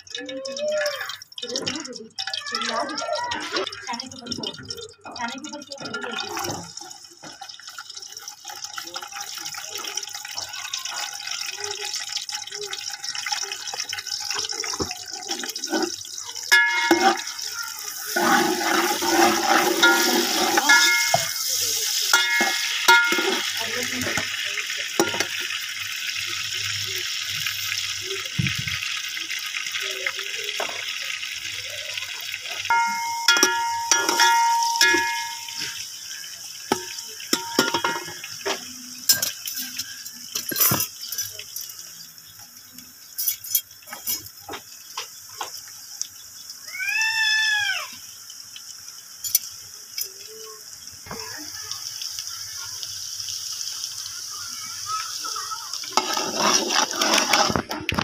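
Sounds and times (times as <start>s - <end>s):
onions sizzling in oil: 0.0s - 58.0s
metal ladle scraping pot: 14.6s - 24.3s, 32.7s - 35.8s, 36.7s - 39.8s, 55.8s - 58.0s.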